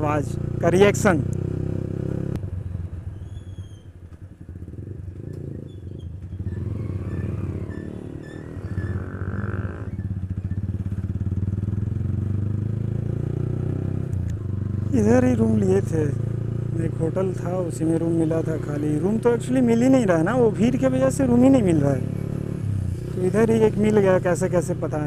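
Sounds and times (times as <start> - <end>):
motorcycle engine running: 0.0 - 3.1, 4.0 - 25.0.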